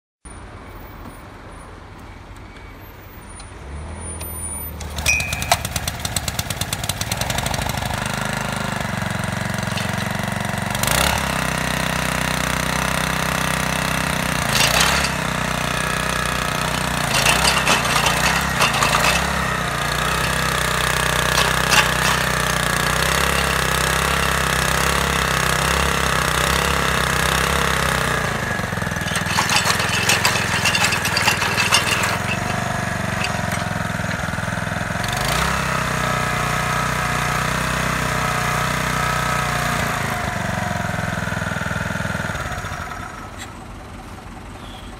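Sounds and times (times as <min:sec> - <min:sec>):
small tiller engine rattling: 0:04.7 - 0:44.8
short knocks and clinks: 0:05.0 - 0:05.8, 0:16.7 - 0:22.6, 0:29.0 - 0:34.3.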